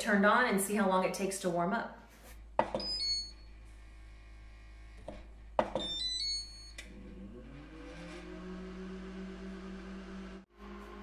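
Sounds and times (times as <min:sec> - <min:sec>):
fan motor humming: 0:06.8 - 0:11.0.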